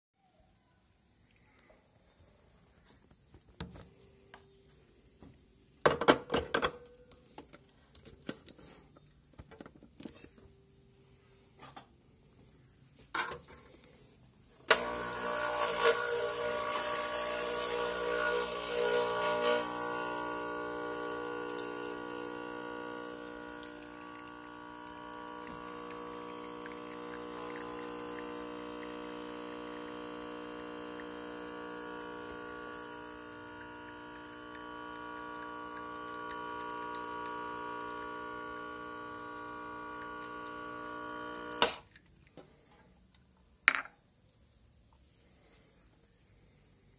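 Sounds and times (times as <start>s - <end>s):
espresso machine pump buzzing: 14.6s - 41.8s.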